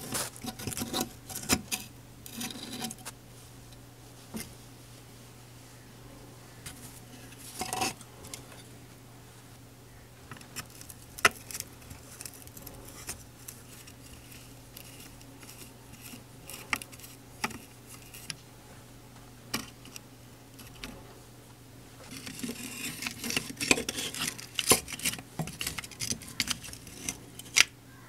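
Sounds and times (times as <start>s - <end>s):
metallic clicks and scrapes: 0.0s - 3.1s, 6.7s - 8.7s, 10.3s - 18.4s, 19.5s - 20.0s, 22.0s - 27.7s
faint low hum: 0.0s - 28.0s.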